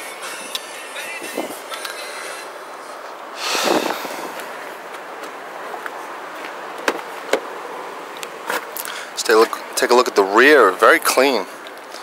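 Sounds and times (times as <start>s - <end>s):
car door latch clicks: 6.8s - 7.5s.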